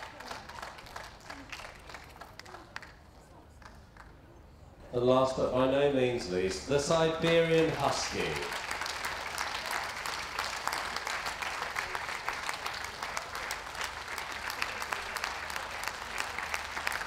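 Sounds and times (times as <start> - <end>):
audience applauding: 0.0 - 3.0, 6.4 - 17.0.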